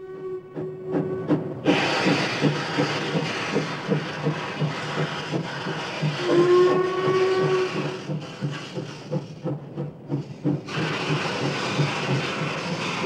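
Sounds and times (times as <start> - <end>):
steam whistle blowing: 0.0 - 1.9, 6.1 - 8.0
locomotive rhythmic chugging: 0.0 - 13.0
steam hiss: 0.9 - 13.0.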